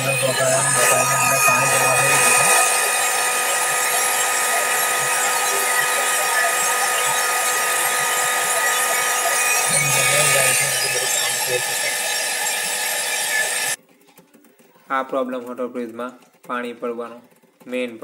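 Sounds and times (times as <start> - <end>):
hair dryer running: 0.0 - 13.8.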